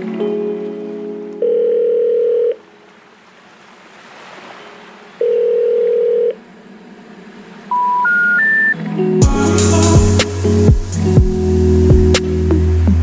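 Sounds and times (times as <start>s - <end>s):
rising telephone beeps: 1.4s - 2.6s, 5.2s - 6.4s, 7.7s - 8.8s
low telephone tone: 1.4s - 2.7s, 5.2s - 6.4s, 7.7s - 8.8s.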